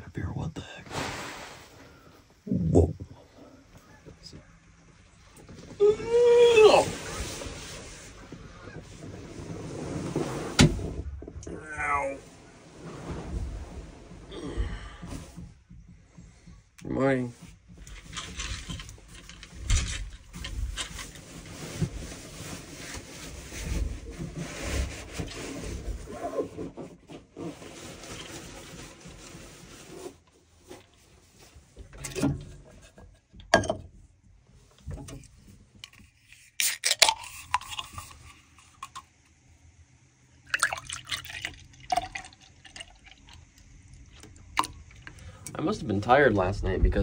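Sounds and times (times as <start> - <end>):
drink pouring into metal mug: 36.6 - 39.1, 40.4 - 43.6.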